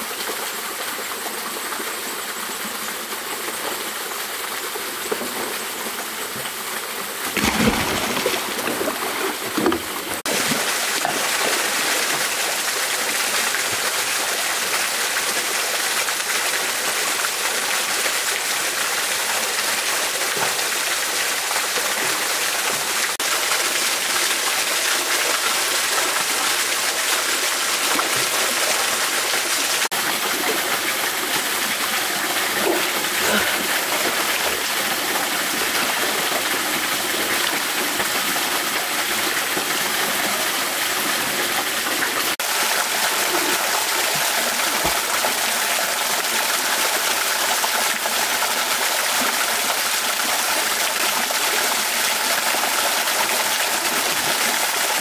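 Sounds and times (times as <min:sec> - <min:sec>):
small waterfall: 0:00.0 - 0:55.0
stream water rushing: 0:00.0 - 0:55.0
splashing in water: 0:07.2 - 0:12.5.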